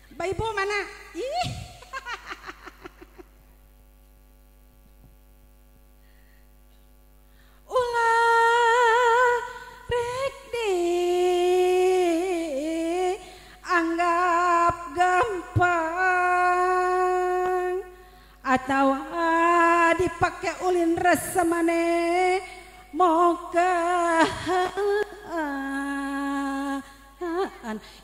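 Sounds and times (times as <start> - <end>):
woman chanting into microphone: 0.0 - 1.9, 7.7 - 28.0
faint steady hum: 0.0 - 28.0.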